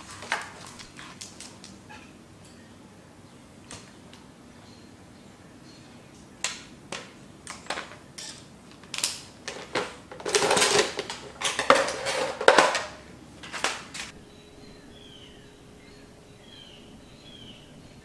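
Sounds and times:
tackle clicks and rattles: 7.0s - 14.1s.

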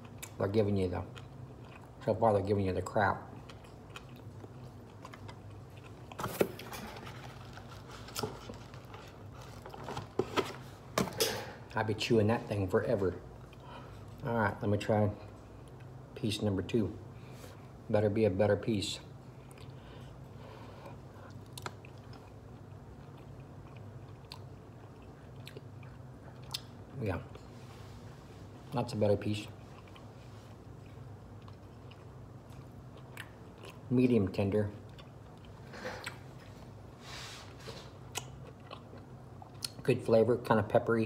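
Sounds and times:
low steady hum: 0.0s - 41.0s
man chewing steak: 1.1s - 2.0s, 3.3s - 9.8s, 19.3s - 26.8s, 29.5s - 33.9s, 34.8s - 36.9s, 37.7s - 39.8s.

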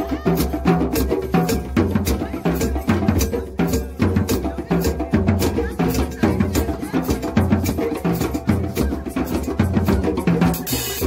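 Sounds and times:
drums playing fast beat: 0.0s - 11.0s.

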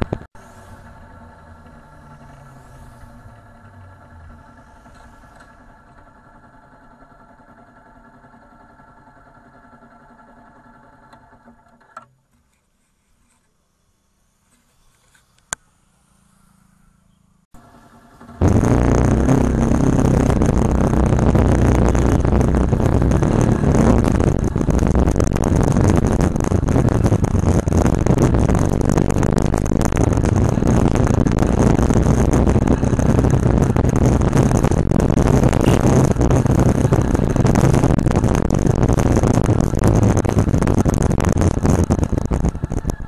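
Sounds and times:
wind and road noise: 0.0s - 6.5s, 14.5s - 17.4s, 18.4s - 43.0s
motorcycle engine running: 0.0s - 11.6s, 17.6s - 43.0s
thin high whine: 18.4s - 43.0s.

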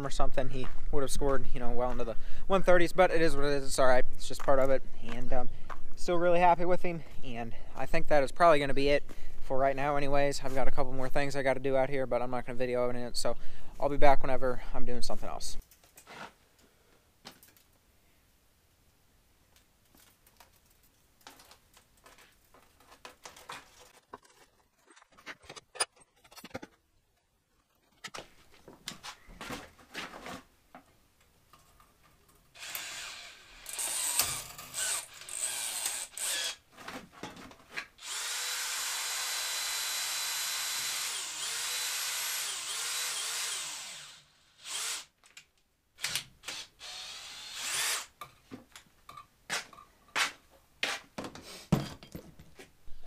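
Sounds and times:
cordless drill twisting wire: 32.6s - 36.6s, 38.0s - 45.4s, 46.0s - 48.2s.

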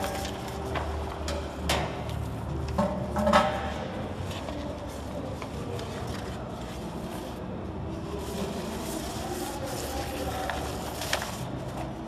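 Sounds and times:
plastic film rustling: 4.2s - 12.0s.

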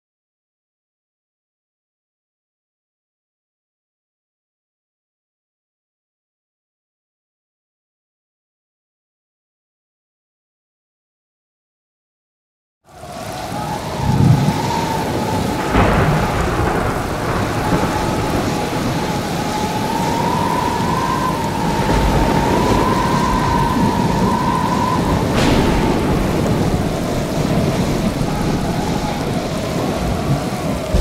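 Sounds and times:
heavy surf: 12.9s - 31.0s
high whistling wind: 12.9s - 31.0s
rain: 12.9s - 31.0s
thunder rumbling and cracking: 12.9s - 31.0s.

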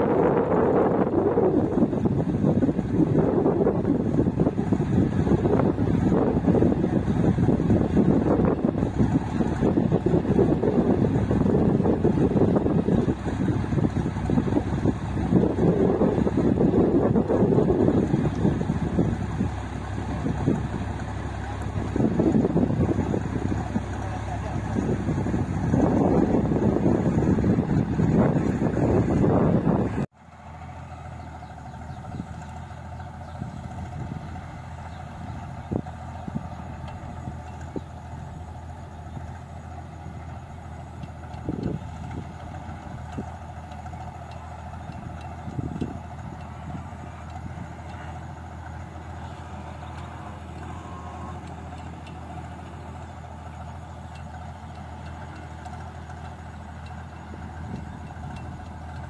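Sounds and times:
combine harvester engine running: 0.0s - 59.0s
wind buffeting microphone: 0.0s - 59.0s.

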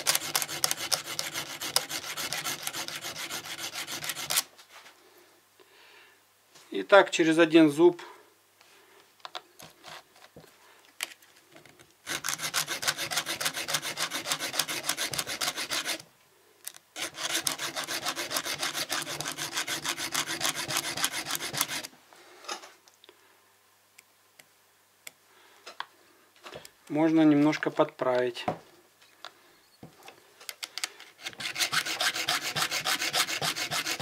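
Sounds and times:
file scraping chainsaw chain: 0.0s - 4.4s, 12.1s - 16.0s, 17.0s - 21.9s, 31.2s - 34.0s.

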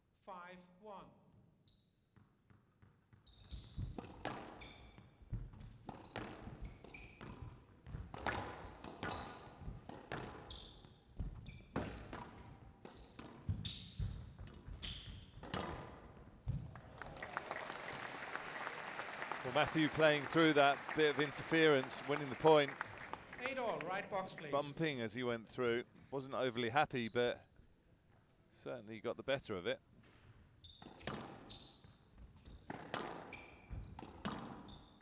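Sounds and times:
shoes squeaking on court: 1.6s - 16.7s, 30.0s - 35.0s
squash ball hits: 5.3s - 10.5s, 11.2s - 16.7s, 32.6s - 34.7s
crowd applauding: 16.7s - 24.8s.

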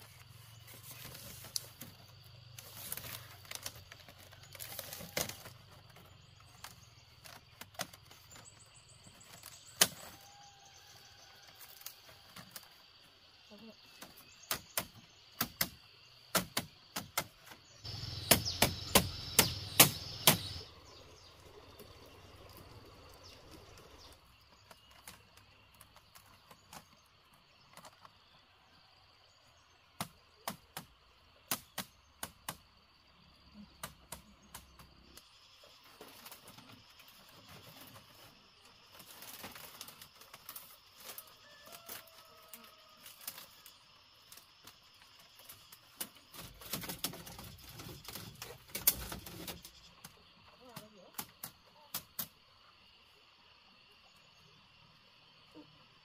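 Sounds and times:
bamboo rustle: 0.0s - 32.7s, 33.8s - 52.7s
bamboo strips clicking and knocking: 0.7s - 8.6s, 9.2s - 10.4s, 14.0s - 20.6s, 23.2s - 28.2s, 30.0s - 32.7s, 33.6s - 35.3s, 38.9s - 52.4s.

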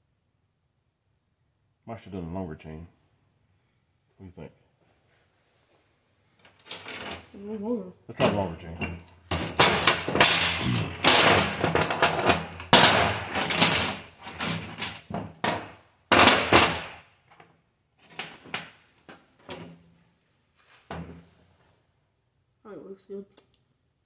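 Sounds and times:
metal chain rattling: 8.8s - 17.0s.

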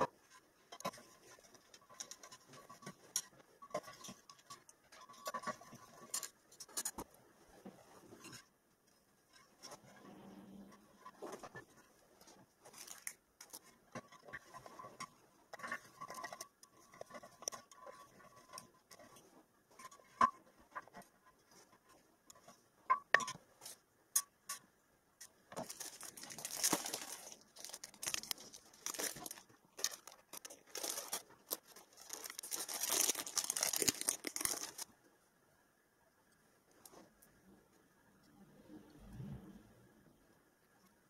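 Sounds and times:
plastic packet crinkling: 12.7s - 13.6s, 25.5s - 34.9s.

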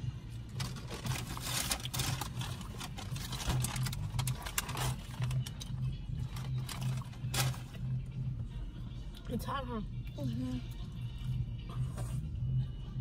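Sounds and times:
paper bag rustling: 0.6s - 5.6s, 6.3s - 7.8s.

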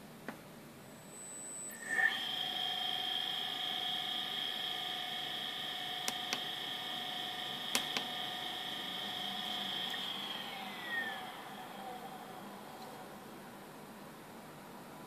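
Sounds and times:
electric motor whining: 1.6s - 13.2s.

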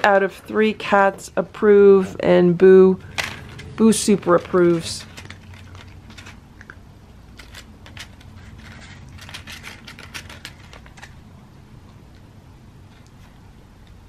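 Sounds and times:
low room hum: 0.0s - 14.0s
cat crunching dry kibble: 3.0s - 14.0s.

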